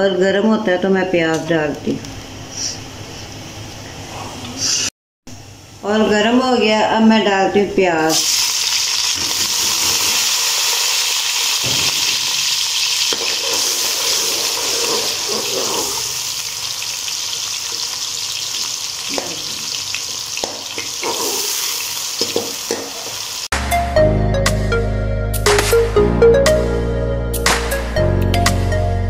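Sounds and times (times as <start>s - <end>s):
onions sizzling in hot oil: 8.1s - 23.5s
metal spoon scraping a pot: 13.5s - 16.0s.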